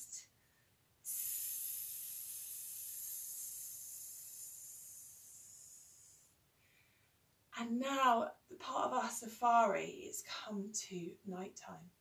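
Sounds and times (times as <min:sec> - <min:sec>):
woman hissing: 0:01.1 - 0:06.3.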